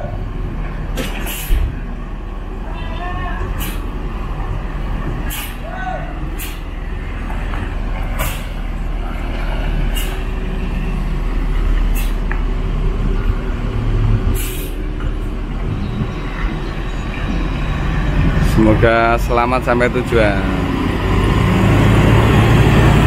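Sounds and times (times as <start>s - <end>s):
diesel bus engine rumbling: 0.0s - 23.0s
compressed air hisses: 9.9s - 10.3s, 11.9s - 12.2s, 14.4s - 14.8s.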